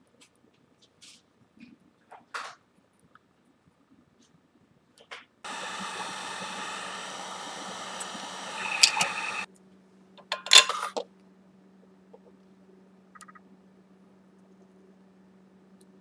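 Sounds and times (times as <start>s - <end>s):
heat gun blowing: 5.5s - 9.5s
sharp clicks: 5.5s - 9.5s.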